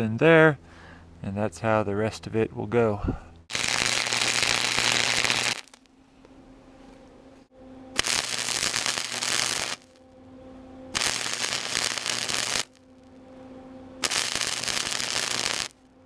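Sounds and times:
crackling welding arc: 3.5 - 5.9, 8.0 - 10.0, 11.0 - 12.8, 14.0 - 15.8
welder hum: 3.5 - 5.9, 7.6 - 16.0.

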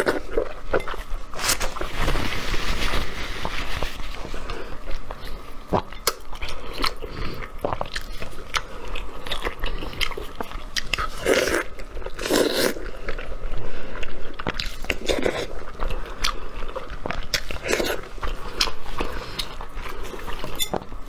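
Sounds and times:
person biting and chewing meat: 4.4 - 13.3, 14.0 - 21.0.

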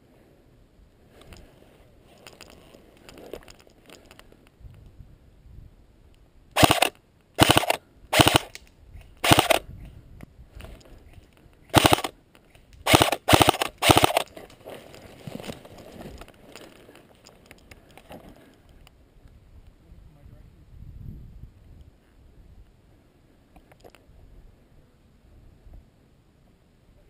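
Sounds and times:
airsoft rifle full-auto bursts: 6.6 - 8.6, 9.2 - 9.6, 11.7 - 12.1, 12.8 - 14.3.

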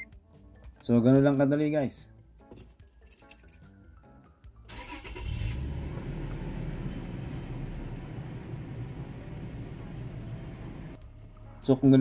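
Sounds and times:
car engine idling: 4.8 - 11.0.

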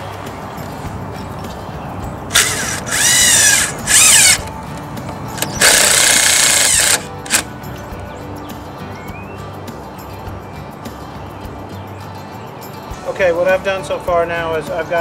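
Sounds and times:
cordless drill driving screws: 2.3 - 4.5, 5.4 - 7.5.

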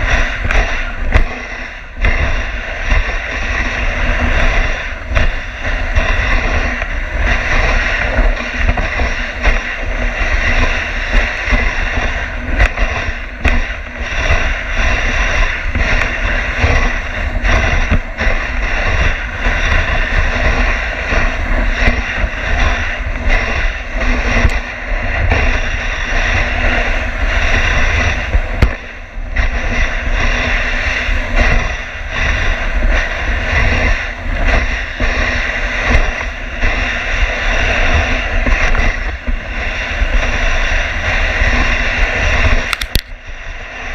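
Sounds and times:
sled knocking and rattling: 0.0 - 43.2
sled runners hissing on snow: 0.0 - 43.9.

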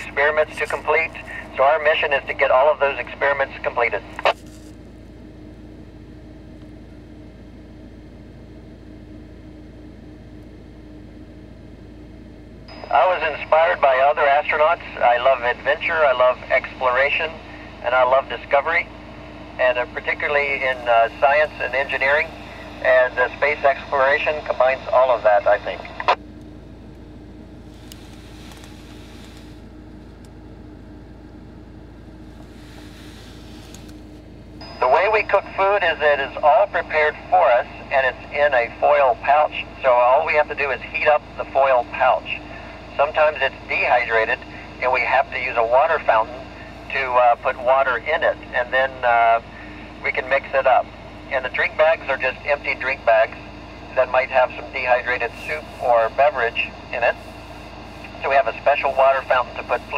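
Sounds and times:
radio squelch hiss: 0.0 - 4.7, 12.9 - 26.2, 27.6 - 29.6, 32.4 - 34.0, 34.8 - 59.9
low steady hum: 0.0 - 59.9.

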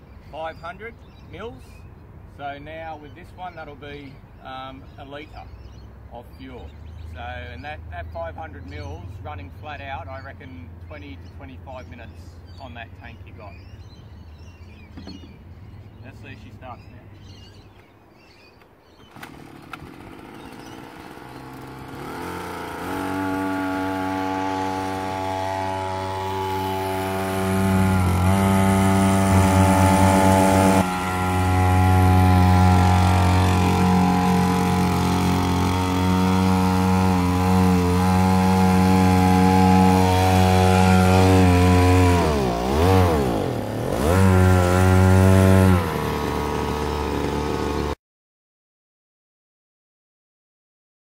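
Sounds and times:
outboard motor buzzing: 13.5 - 16.0, 17.2 - 48.0.

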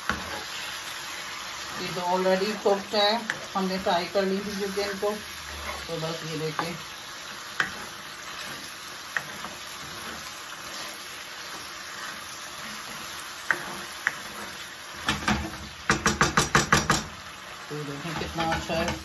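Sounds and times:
sauce sizzling in a wok: 0.0 - 19.0
spatula clicking on pan: 7.6 - 7.8, 13.4 - 14.3, 15.0 - 17.2.

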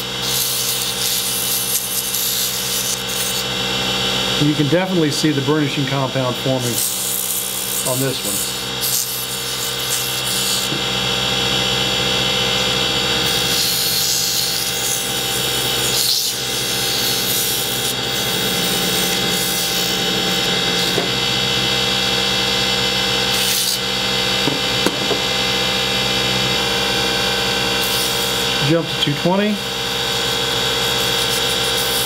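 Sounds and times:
sandpaper rubbing spinning wood: 0.0 - 3.5, 6.5 - 10.7, 13.2 - 21.7, 23.3 - 23.8, 27.7 - 28.8, 30.0 - 32.0
wood lathe motor hum: 0.0 - 32.0.

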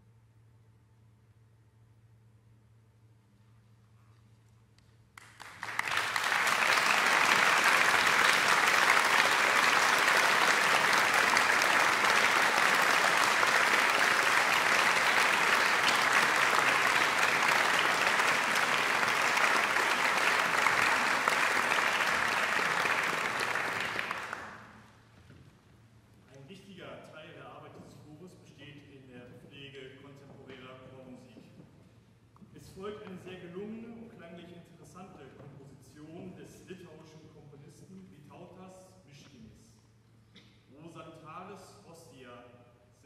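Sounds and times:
audience applauding: 5.2 - 24.8.

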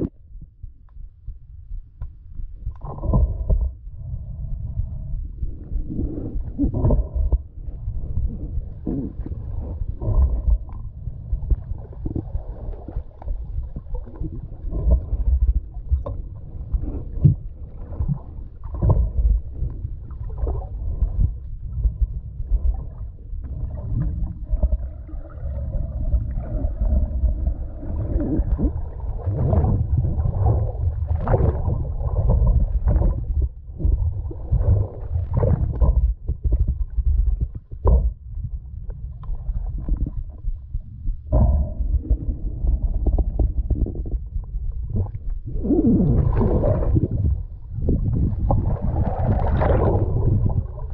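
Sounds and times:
underwater water rumble: 0.0 - 50.9
bubbling water: 6.0 - 38.3, 41.3 - 50.9
underwater thuds: 17.1 - 24.8, 28.2 - 50.9.

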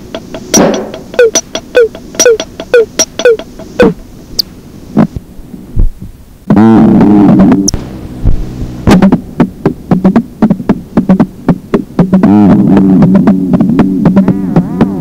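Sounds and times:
low synthesizer tone: 0.0 - 4.0, 6.5 - 15.0
sharp percussive notes: 0.0 - 4.0.

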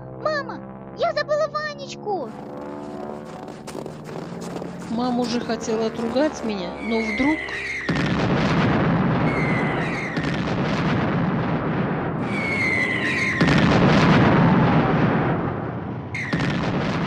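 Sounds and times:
falling bomb whistles: 6.8 - 10.5, 12.2 - 14.9, 16.1 - 17.0
explosions: 7.6 - 17.0.

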